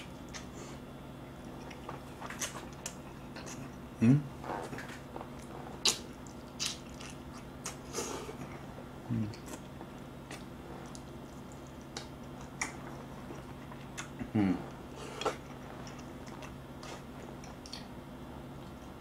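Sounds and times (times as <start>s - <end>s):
person chewing food: 0.0s - 19.0s
wet mouth clicks: 17.4s - 17.9s.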